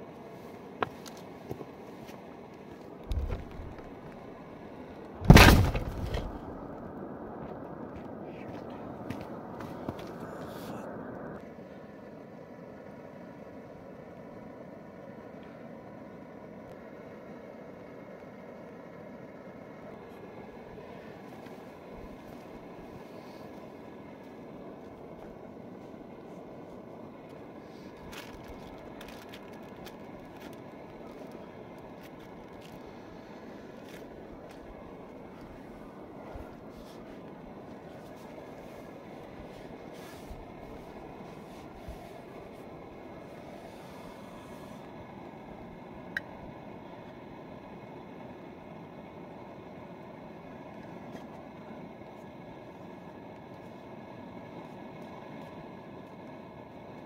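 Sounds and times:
low background rumble: 1.6 - 57.0
gas stove hissing: 28.8 - 57.0
scraping on tent groundsheet: 38.0 - 42.3.

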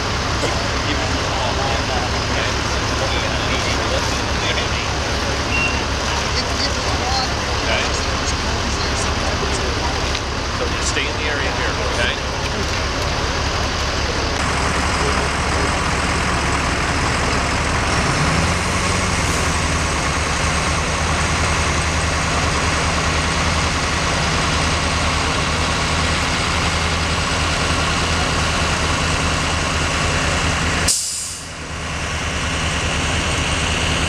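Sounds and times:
bus passing: 0.0 - 34.0
diesel engines idling: 0.0 - 34.0
road noise: 0.0 - 34.0
short sharp hiss: 30.9 - 31.5.

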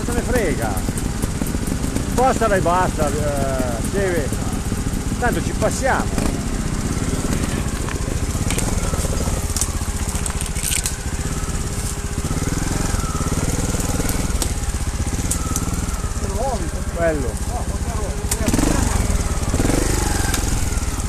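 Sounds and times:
motorcycle engine at low revs: 0.0 - 21.0
stones and brush crunching: 7.2 - 12.1.

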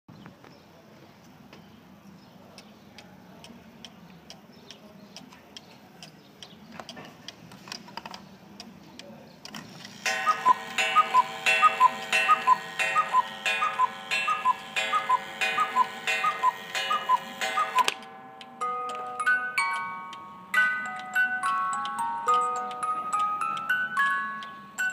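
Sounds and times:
clock ticking: 10.0 - 24.9
two-note cuckoo calls: 10.1 - 18.0.

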